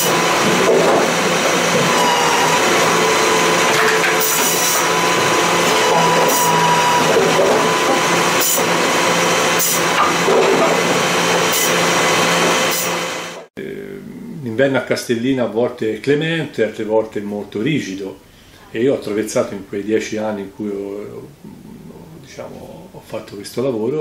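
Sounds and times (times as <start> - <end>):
power saw cutting wood: 0.0 - 13.5.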